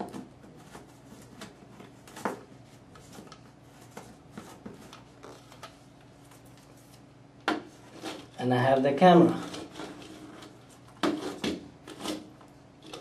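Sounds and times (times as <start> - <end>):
cable rustling through ceiling tile: 0.0 - 13.0.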